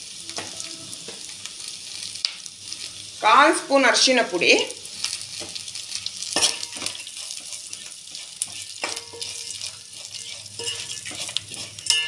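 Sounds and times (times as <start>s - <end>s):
onions sizzling in oil: 0.0s - 12.0s
metal spoon scraping a pot: 6.2s - 12.0s.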